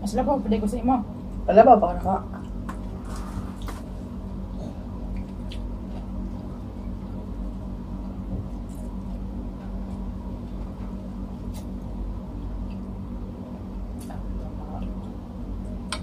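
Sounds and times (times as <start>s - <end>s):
steady low hum: 0.0s - 16.0s
people eating with mouth sounds: 2.3s - 7.3s.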